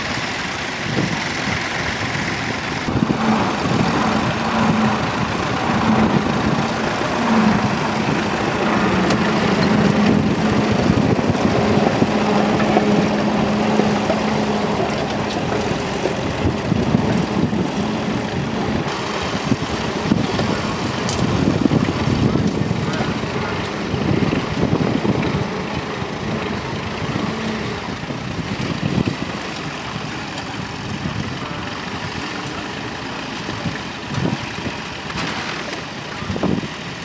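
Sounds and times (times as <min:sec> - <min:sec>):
tractor engines running: 0:00.0 - 0:37.0.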